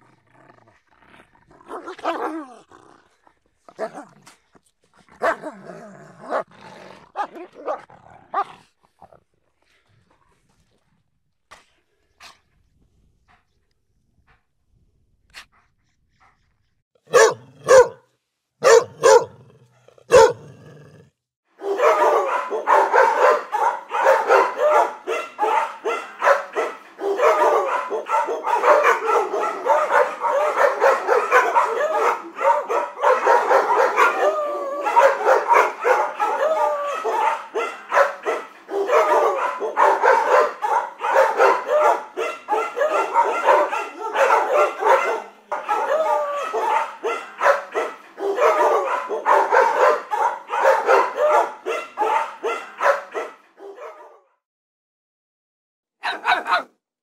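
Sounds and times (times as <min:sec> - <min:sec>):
dogs barking: 0:01.7 - 0:02.5, 0:05.2 - 0:06.5, 0:17.1 - 0:18.0, 0:18.6 - 0:19.4, 0:20.0 - 0:20.6, 0:21.6 - 0:54.3, 0:56.0 - 0:56.7.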